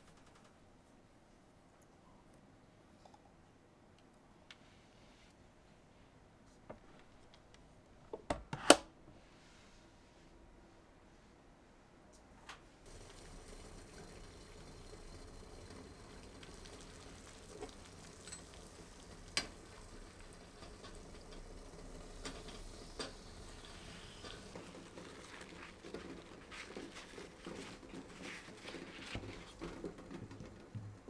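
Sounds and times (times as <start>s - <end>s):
water boiling in a saucepan: 12.8s - 31.0s.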